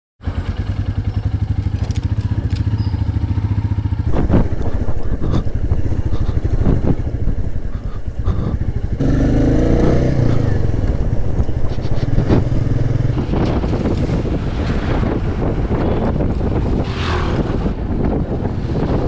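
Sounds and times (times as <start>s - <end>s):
motorcycle engine thumping: 0.4s - 16.8s.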